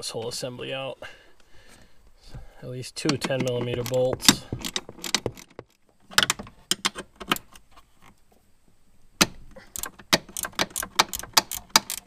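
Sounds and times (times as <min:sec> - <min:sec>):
hand ratchet clicking: 0:09.7 - 0:12.0.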